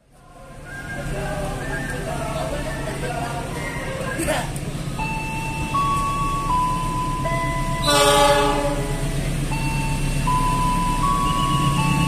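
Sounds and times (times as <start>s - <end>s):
locomotive air horn blast: 7.8s - 9.1s.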